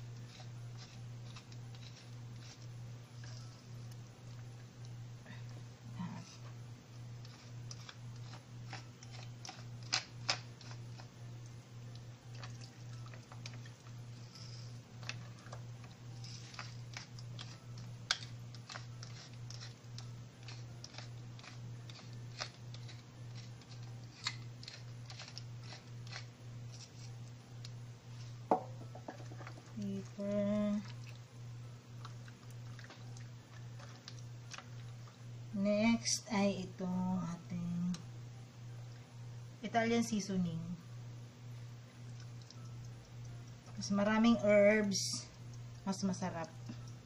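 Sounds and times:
pepper mill grinding: 0:00.0 - 0:04.5, 0:07.1 - 0:11.2, 0:11.9 - 0:31.0
low hum: 0:00.0 - 0:47.0.

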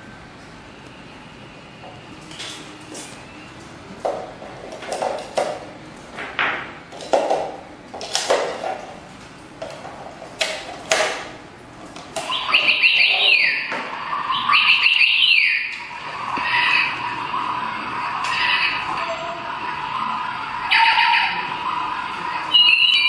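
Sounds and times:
electronic bird chirping: 0:12.2 - 0:15.7, 0:16.4 - 0:17.1, 0:22.5 - 0:23.0.

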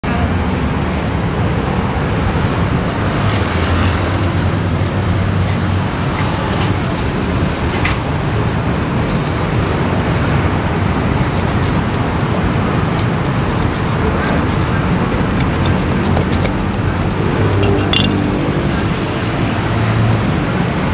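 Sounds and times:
street traffic noise: 0:00.0 - 0:20.9
knife scraping fish: 0:11.2 - 0:17.8.

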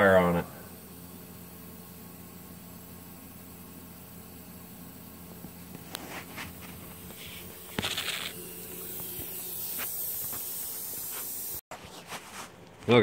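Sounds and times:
steady hiss: 0:00.0 - 0:11.6
short scraping rustle: 0:05.8 - 0:08.4, 0:09.7 - 0:12.6.

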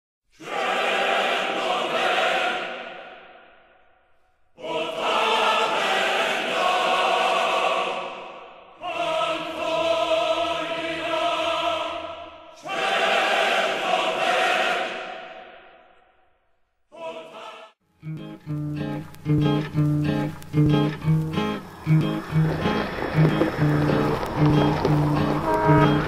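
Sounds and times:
choir singing sustained chords: 0:00.4 - 0:03.6, 0:04.5 - 0:16.1, 0:21.3 - 0:26.0.

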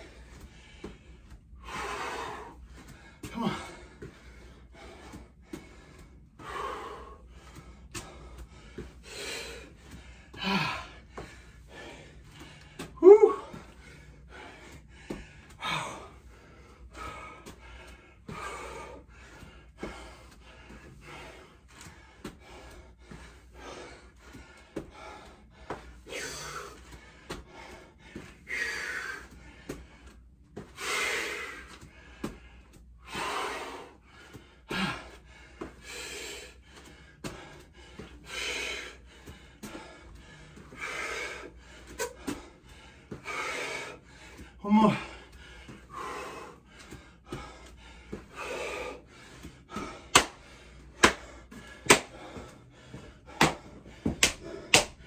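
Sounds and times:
man breathing hard: 0:00.0 - 0:55.0
man grunting: 0:03.3 - 0:03.8, 0:13.0 - 0:13.6, 0:44.6 - 0:45.2.

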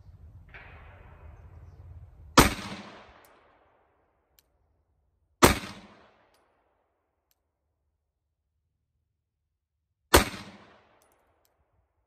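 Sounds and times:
pistol shots: 0:02.4 - 0:03.8, 0:05.4 - 0:06.6, 0:10.1 - 0:11.2.

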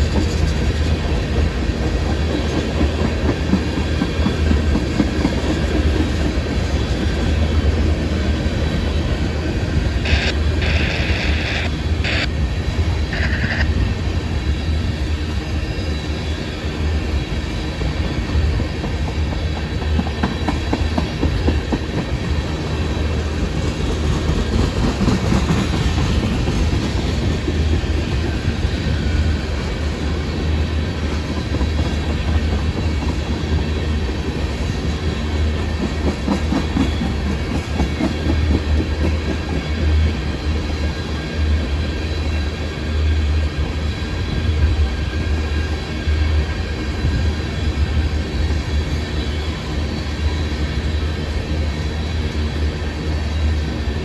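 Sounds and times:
freight train rumbling: 0:00.0 - 0:54.0.

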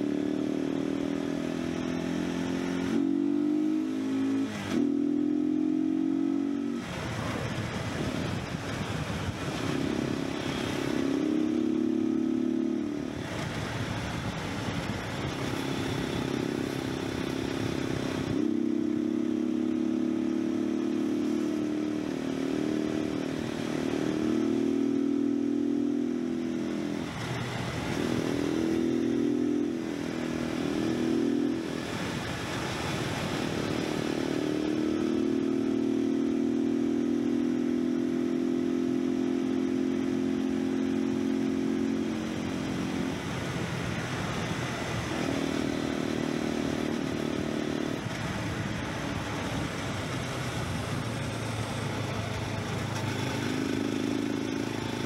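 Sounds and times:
motorcycle engine cruising: 0:00.0 - 0:55.0
wind rush: 0:06.6 - 0:11.8, 0:12.8 - 0:18.6, 0:26.6 - 0:29.2, 0:29.8 - 0:34.0, 0:42.0 - 0:52.6.

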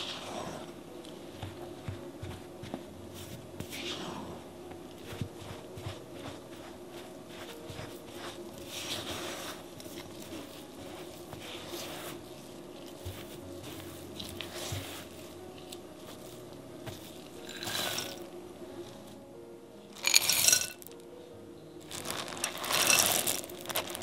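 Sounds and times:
nuts rattling into bowl: 0:17.4 - 0:18.2, 0:20.0 - 0:21.0, 0:21.9 - 0:24.0.

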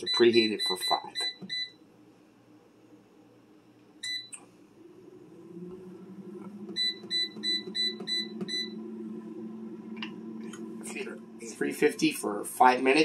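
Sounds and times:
air fryer fan humming: 0:00.0 - 0:13.0
control panel beeping: 0:06.6 - 0:11.1.

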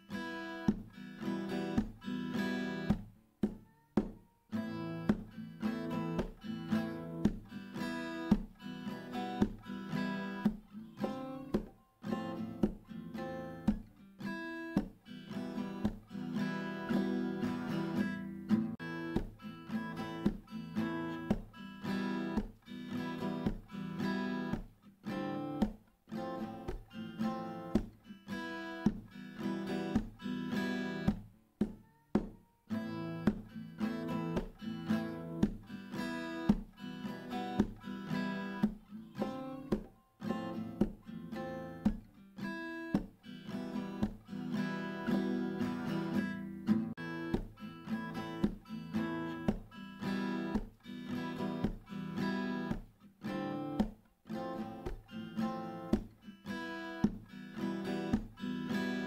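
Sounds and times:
acoustic guitar plucked notes: 0:00.0 - 0:59.0.

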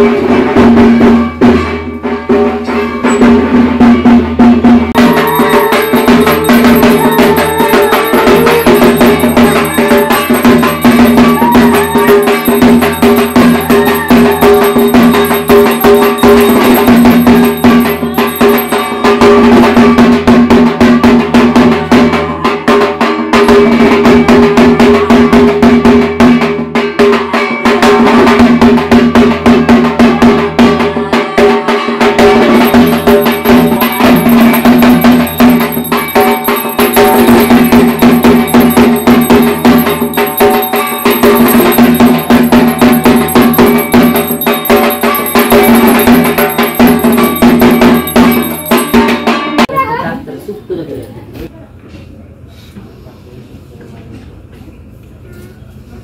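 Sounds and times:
clanging metal percussion: 0:00.0 - 0:22.3, 0:32.2 - 0:49.7
fast drumming: 0:03.2 - 0:27.2, 0:32.0 - 0:49.5
steady held tone: 0:05.0 - 0:19.5, 0:32.5 - 0:49.4
bells ringing: 0:05.0 - 0:20.0, 0:32.4 - 0:49.7.

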